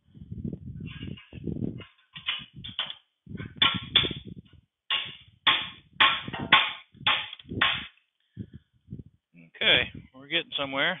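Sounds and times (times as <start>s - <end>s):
hammer striking steel rod: 4.9s - 7.9s.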